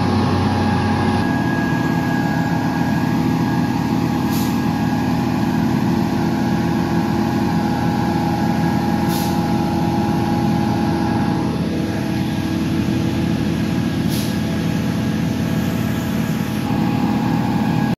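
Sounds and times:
heavy truck engine running: 0:00.0 - 0:17.9
short air hisses: 0:04.2 - 0:04.8, 0:09.0 - 0:09.6, 0:14.0 - 0:14.5.

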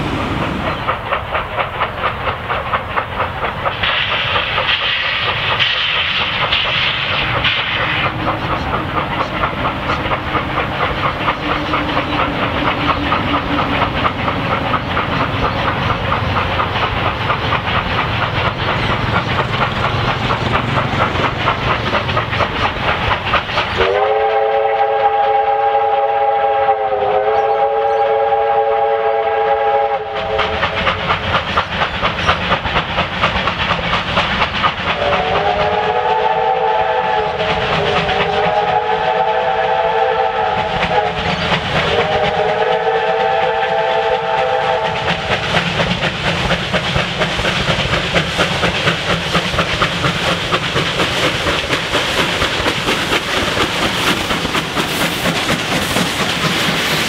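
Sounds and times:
steam locomotive chuffing: 0:00.0 - 0:57.0
steam whistle chord: 0:23.8 - 0:30.4, 0:35.0 - 0:37.4, 0:38.3 - 0:41.2, 0:41.9 - 0:45.0.

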